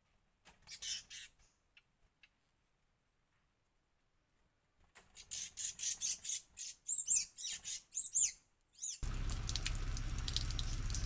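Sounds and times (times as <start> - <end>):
small birds chirping: 0.5 - 2.4, 5.0 - 11.0
steady hiss with low hum: 9.0 - 11.0.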